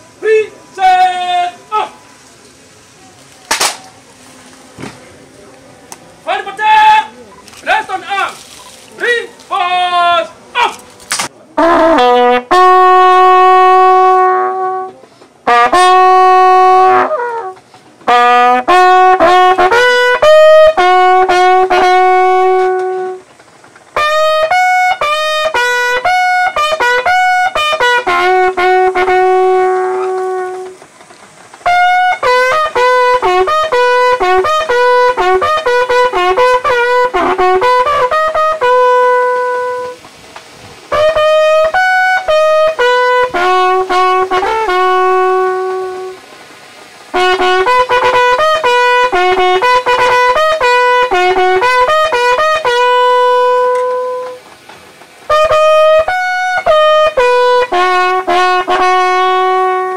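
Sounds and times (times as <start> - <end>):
bugle playing slow call: 11.6 - 30.9, 31.6 - 40.2, 40.8 - 46.3, 47.0 - 59.9.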